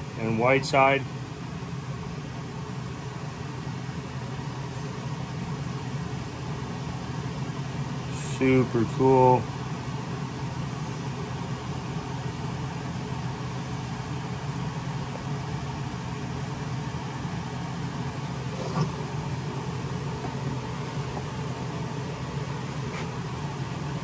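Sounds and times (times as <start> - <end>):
low mechanical hum with hiss: 0.0 - 24.0.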